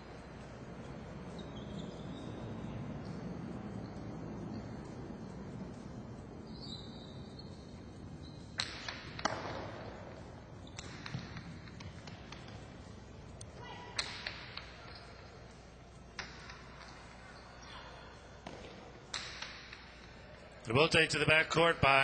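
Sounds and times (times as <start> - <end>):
ball cracking against court walls: 8.5 - 12.9, 13.9 - 15.3, 16.2 - 17.1, 18.4 - 20.2.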